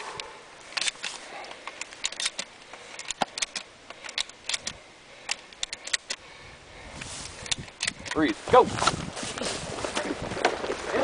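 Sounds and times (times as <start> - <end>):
shotgun shells loading metallic clicks: 0.7 - 6.2, 7.4 - 8.3.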